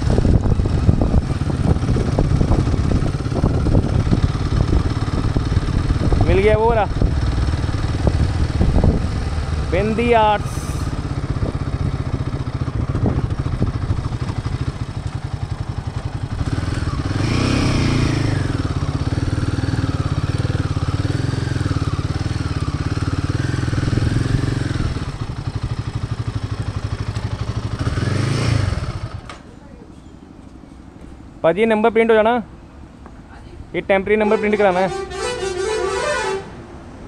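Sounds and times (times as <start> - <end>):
motorcycle engine thumping: 11.2 - 17.2.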